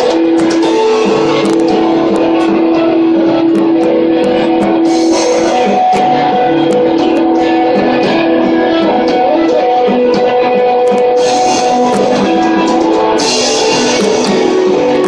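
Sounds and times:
electric guitars ringing: 0.0 - 15.0
sharp cymbal hits: 3.5 - 7.9, 11.2 - 15.0.

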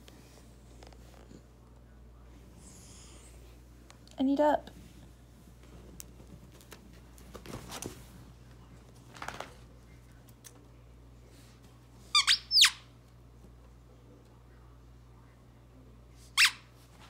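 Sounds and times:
squeaky dog toy squeaking: 12.2 - 12.8, 16.4 - 16.7.

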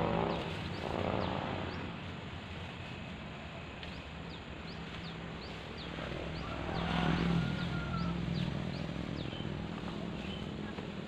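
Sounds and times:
birds chirping: 0.0 - 11.0
steady outdoor noise: 0.0 - 11.0.

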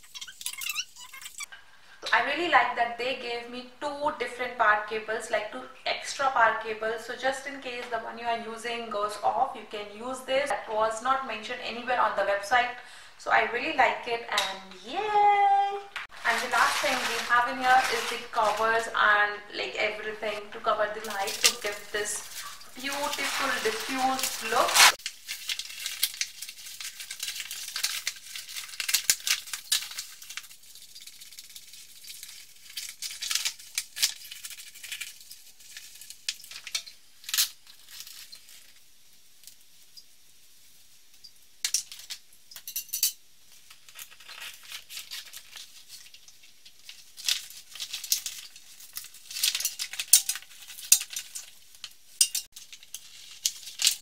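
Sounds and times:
nylon fabric rustling: 16.0 - 19.0, 20.2 - 25.0.

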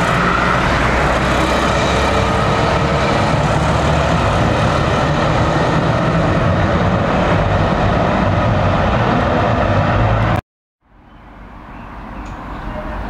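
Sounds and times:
heavy vehicle engine droning: 0.0 - 10.4
street traffic: 0.0 - 13.0.

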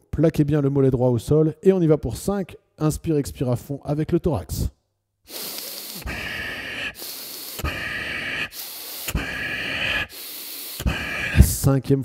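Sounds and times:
man breathing deeply: 5.3 - 11.7.

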